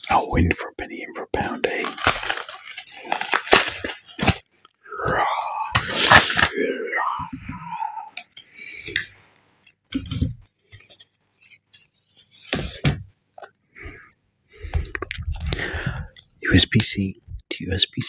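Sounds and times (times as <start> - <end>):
paper rustling: 1.8 - 4.4.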